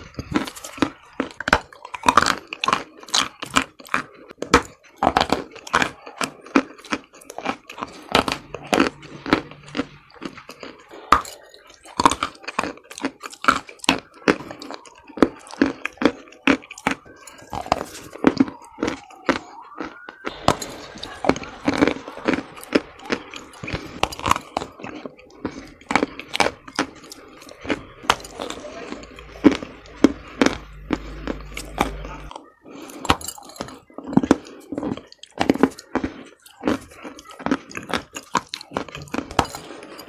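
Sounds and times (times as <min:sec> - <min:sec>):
chalk crunching while chewed: 0:00.0 - 0:40.0.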